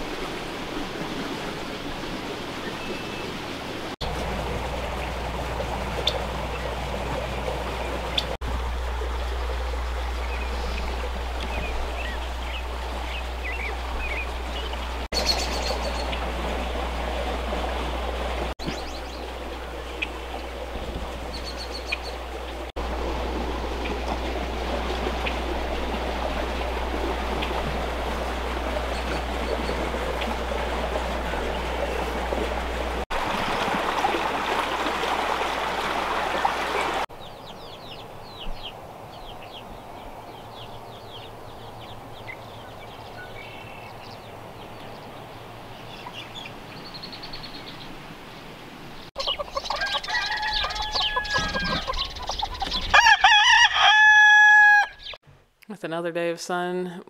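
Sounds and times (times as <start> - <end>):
chickens calling: 49.1 - 55.2
rooster crowing: 49.7 - 51.9, 52.9 - 55.1.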